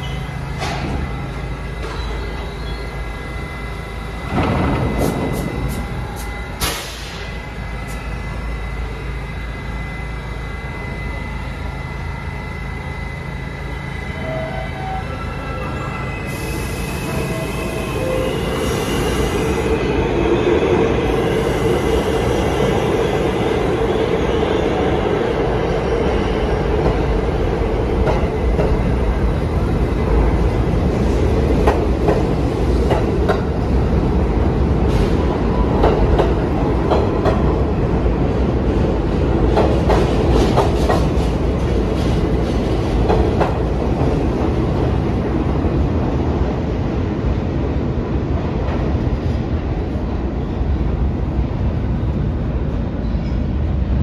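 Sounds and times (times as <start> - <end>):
subway train rumble: 0.0 - 54.0.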